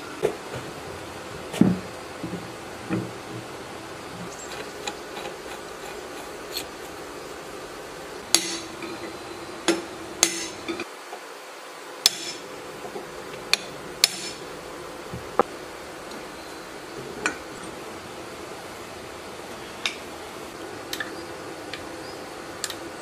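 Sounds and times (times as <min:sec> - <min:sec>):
hammer striking metal rod: 0:08.3 - 0:08.7, 0:09.7 - 0:10.6.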